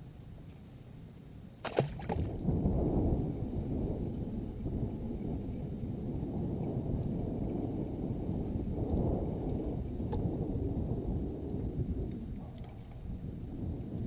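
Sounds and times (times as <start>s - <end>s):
wind buffeting microphone: 1.5s - 14.0s
water lapping against boat hull: 1.6s - 2.4s.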